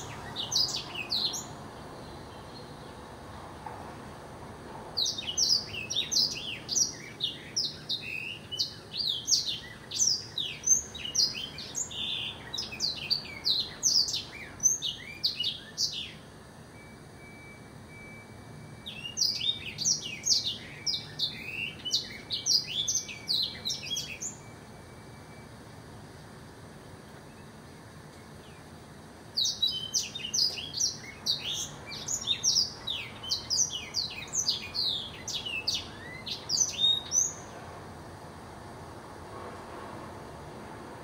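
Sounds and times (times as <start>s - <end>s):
canary twittering song: 0.0s - 3.0s, 5.0s - 25.4s, 29.4s - 37.6s.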